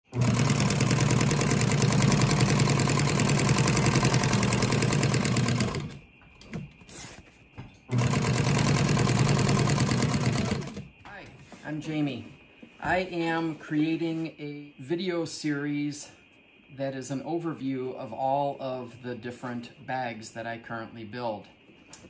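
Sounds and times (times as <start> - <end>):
sewing machine rattling: 0.1 - 6.0, 7.9 - 10.8.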